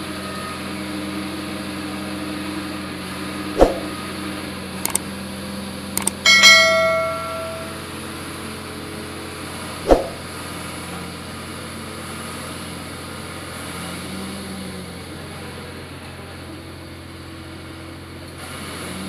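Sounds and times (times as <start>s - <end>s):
sharp knock: 3.6s - 3.9s, 6.3s - 7.8s, 9.9s - 10.2s
bell-like chime: 6.1s - 7.8s.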